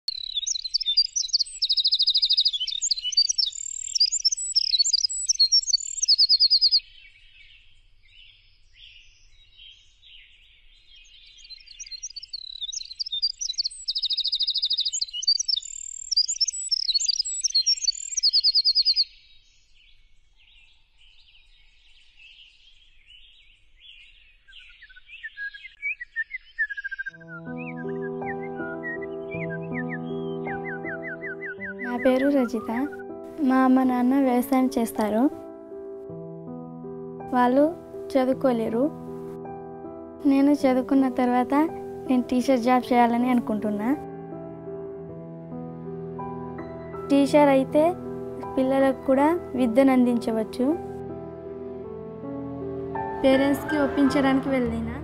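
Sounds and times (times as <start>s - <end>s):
chorus of chirping birds: 0.1s - 33.6s
bird singing trilling phrase: 0.1s - 35.4s, 46.6s - 51.0s, 53.0s - 55.0s.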